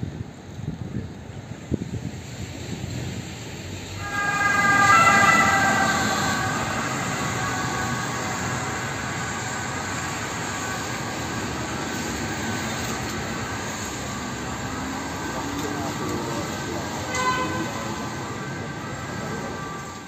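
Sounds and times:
traffic on a wet road: 0:00.0 - 0:20.0
vehicle horn tone: 0:04.0 - 0:10.9, 0:17.1 - 0:18.0.

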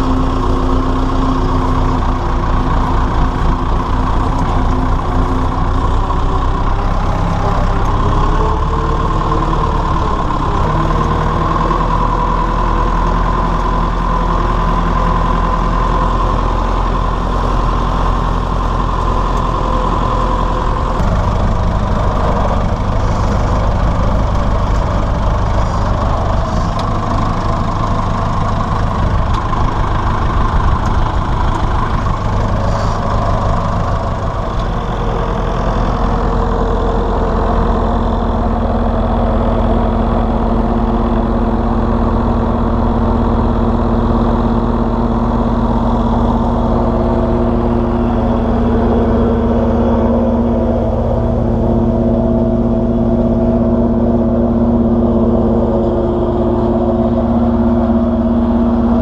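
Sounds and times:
tractor diesel engine running: 0:00.0 - 0:59.0
steady tone: 0:19.5 - 0:59.0.

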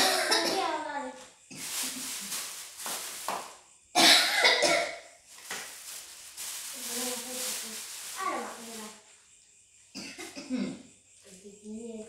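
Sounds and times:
woman coughing: 0:00.0 - 0:00.7, 0:04.0 - 0:05.0, 0:10.0 - 0:10.8.

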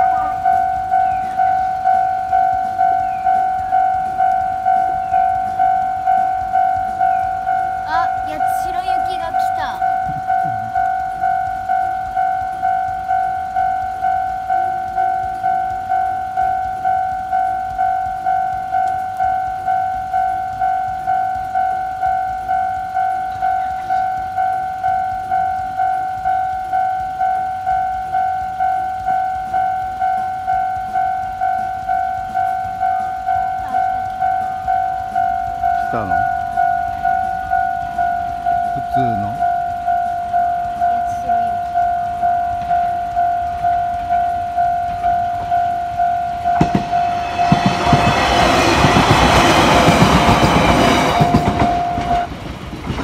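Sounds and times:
level crossing electronic bell: 0:00.0 - 0:52.3.

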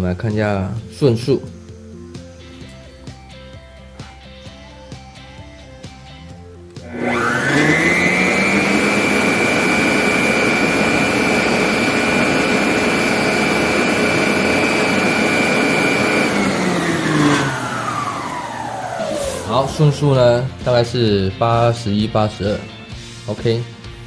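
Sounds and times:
stand mixer motor whining: 0:06.8 - 0:20.3.

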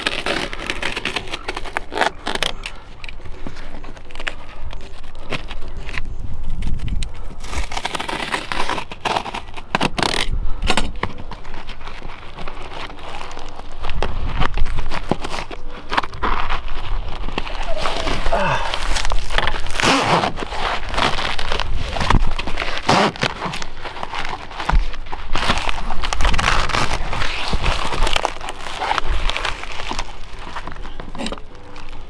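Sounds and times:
knife cutting and scraping foam: 0:00.0 - 0:02.6, 0:07.4 - 0:10.4, 0:14.6 - 0:30.2.

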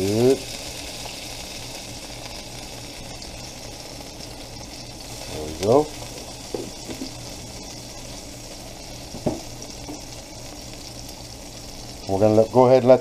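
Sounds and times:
butter sizzling in a pan: 0:00.0 - 0:13.0.

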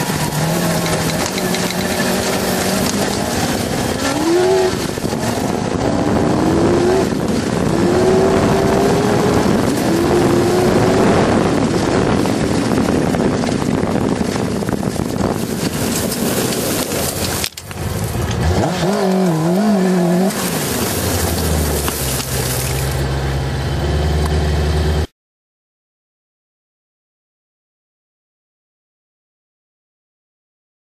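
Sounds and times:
steady rushing noise: 0:00.0 - 0:23.2
motorcycle engine revving through gears: 0:00.0 - 0:25.1.

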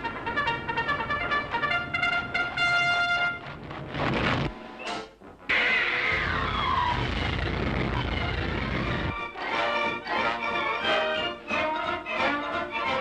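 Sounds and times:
orchestral cartoon music: 0:00.0 - 0:03.6, 0:07.8 - 0:13.0
cartoon falling whine effect: 0:04.9 - 0:09.1.

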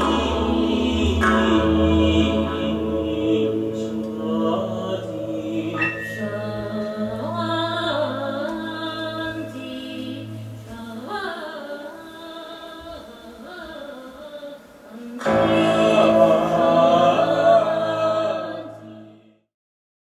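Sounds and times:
low steady drone: 0:00.0 - 0:10.7
choral chant singing: 0:00.0 - 0:14.0, 0:14.9 - 0:19.5.

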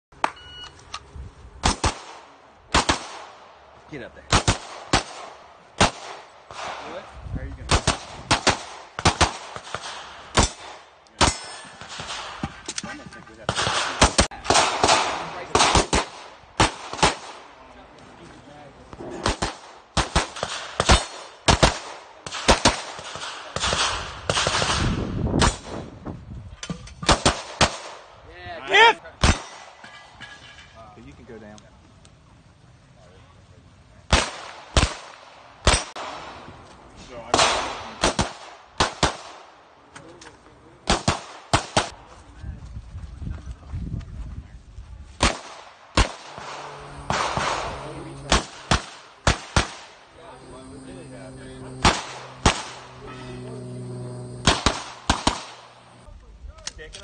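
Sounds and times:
pistol shots: 0:01.6 - 0:03.4, 0:04.3 - 0:06.9, 0:07.7 - 0:12.6, 0:13.5 - 0:17.4, 0:19.2 - 0:24.8, 0:27.0 - 0:28.0, 0:29.2 - 0:29.8, 0:34.1 - 0:36.4, 0:37.3 - 0:39.5, 0:40.8 - 0:42.0, 0:45.2 - 0:50.0, 0:51.7 - 0:53.2, 0:54.3 - 0:56.0.

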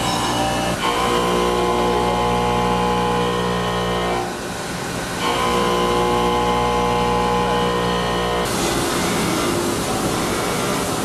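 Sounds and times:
milling cutter whine: 0:00.0 - 0:04.4, 0:05.2 - 0:11.0
coolant spray hiss: 0:08.5 - 0:11.0.

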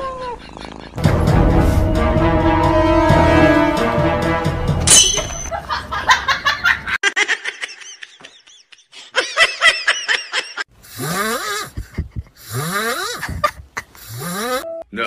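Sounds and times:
person laughing: 0:05.5 - 0:14.6
person snoring: 0:10.8 - 0:14.6.

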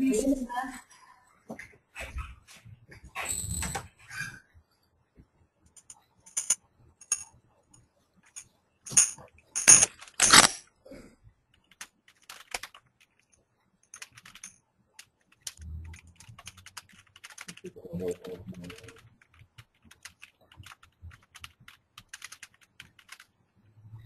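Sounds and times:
computer keyboard typing: 0:11.5 - 0:17.7, 0:18.6 - 0:23.4.

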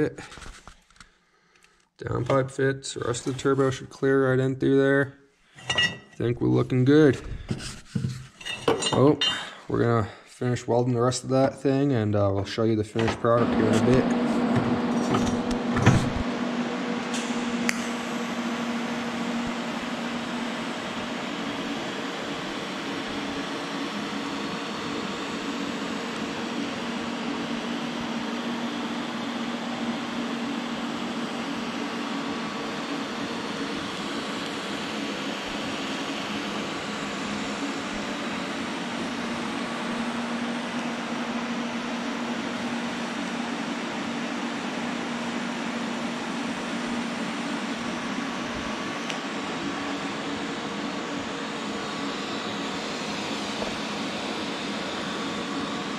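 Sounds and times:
welder arc hum: 0:13.2 - 0:55.9.

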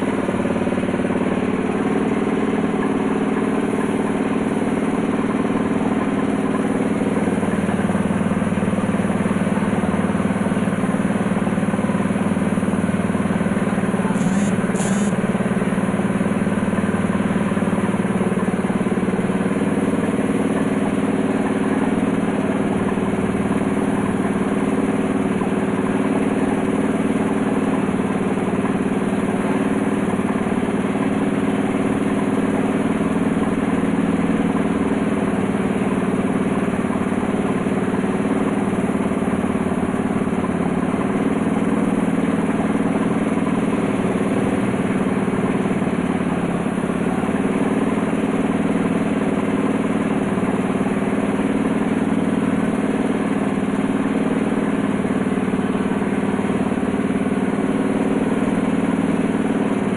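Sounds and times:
air compressor running: 0:00.0 - 0:59.9
spray gun air hiss: 0:14.1 - 0:15.2.

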